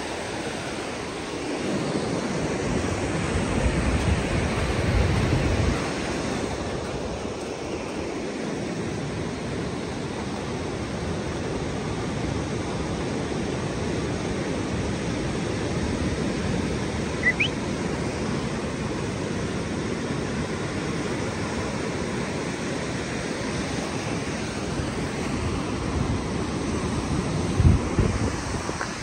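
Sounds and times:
waves breaking: 0.0 - 29.0
high rising chirp: 17.2 - 17.6.

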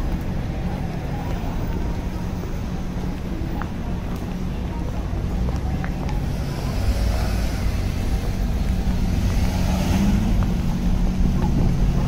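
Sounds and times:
low traffic rumble: 0.0 - 12.0
car passing: 6.1 - 12.0.

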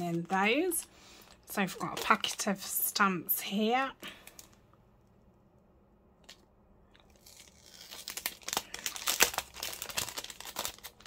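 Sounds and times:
plastic packet crinkling: 0.0 - 2.7, 7.0 - 11.0.

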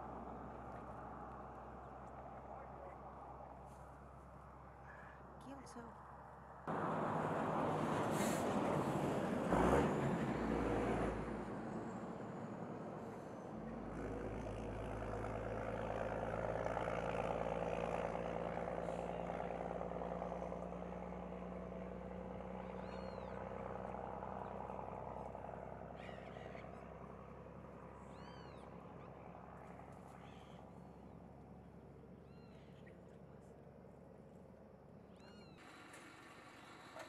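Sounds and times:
engine hum: 0.0 - 37.0
small bird chirping: 28.1 - 28.7, 32.3 - 33.0, 35.1 - 35.6.

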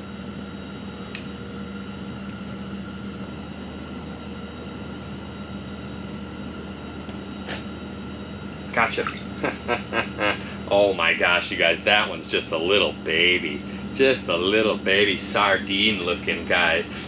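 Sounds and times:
low steady hum: 0.0 - 17.0
even hiss: 8.7 - 17.0.

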